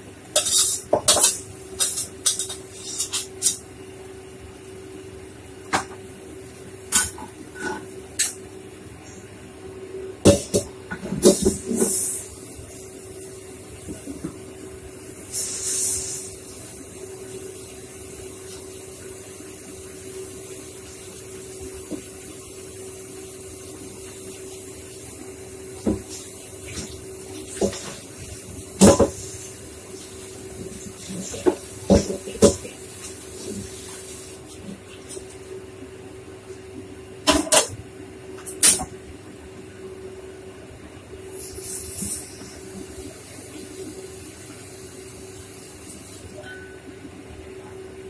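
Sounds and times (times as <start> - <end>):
steady hum: 0.0 - 48.0
tap water running: 20.4 - 35.3.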